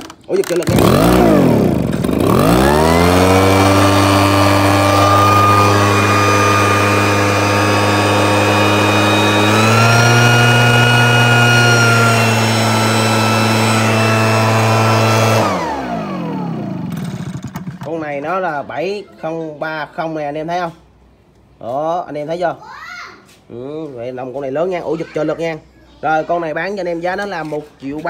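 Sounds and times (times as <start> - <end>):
small two-stroke engine running: 0.4 - 17.9.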